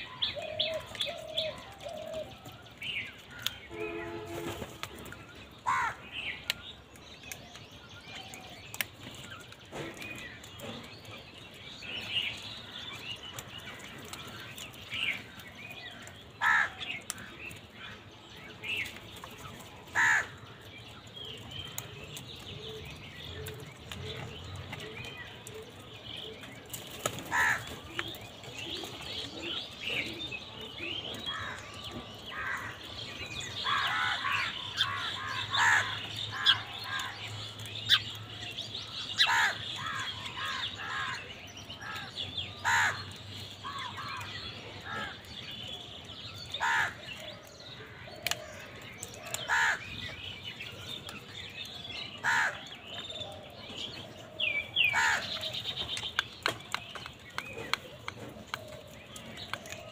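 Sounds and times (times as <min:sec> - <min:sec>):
crows cawing: 0:05.6 - 0:06.0, 0:16.4 - 0:17.3, 0:19.9 - 0:20.4, 0:27.3 - 0:27.8, 0:31.3 - 0:32.8, 0:33.6 - 0:37.2, 0:39.1 - 0:45.3, 0:46.6 - 0:47.1, 0:47.9 - 0:50.1, 0:52.2 - 0:52.9, 0:54.8 - 0:55.6.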